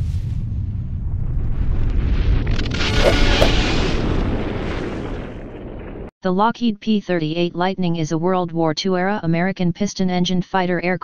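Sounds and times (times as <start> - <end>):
explosion rumble: 0.0 - 6.1.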